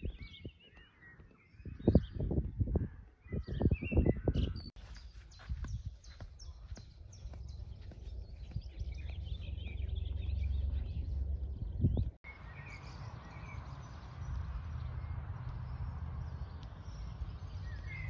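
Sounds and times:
small birds chirping: 0.0 - 18.0
steady low rumble: 7.0 - 18.0.

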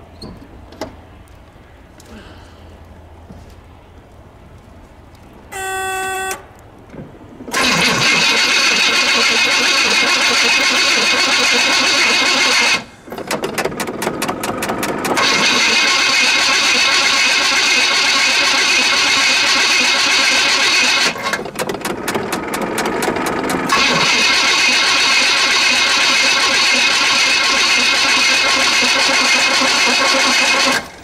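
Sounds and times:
short electric tone: 5.5 - 6.5
engine cranking: 7.5 - 31.0.

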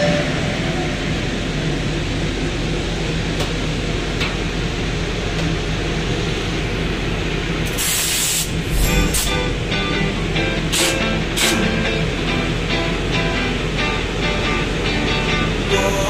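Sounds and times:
engine room machinery hum: 0.0 - 16.0
sharp burst of hiss: 7.7 - 9.5, 10.7 - 11.7.

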